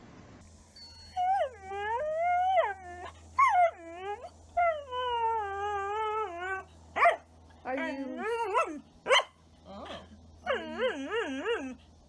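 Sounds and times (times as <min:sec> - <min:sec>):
dog howling: 0:01.1 - 0:07.2.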